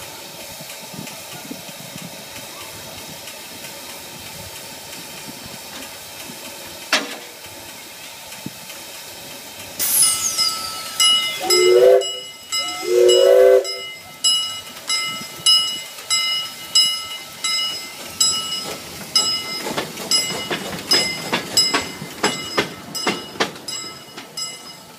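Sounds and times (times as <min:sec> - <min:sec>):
steam locomotive whistle blasts: 0:09.8 - 0:14.0
locomotive bell ringing: 0:09.8 - 0:24.9.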